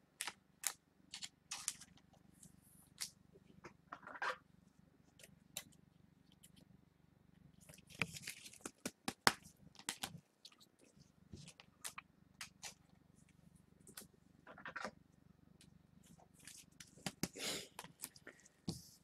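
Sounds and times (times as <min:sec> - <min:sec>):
trading cards rustling and clicking: 0:00.2 - 0:02.0, 0:07.7 - 0:10.6.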